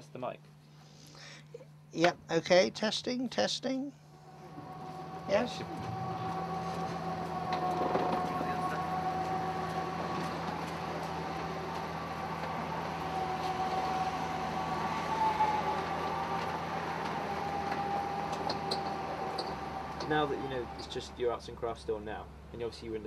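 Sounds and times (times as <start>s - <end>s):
constant droning hum: 0.0s - 23.0s
street traffic noise: 4.2s - 21.6s.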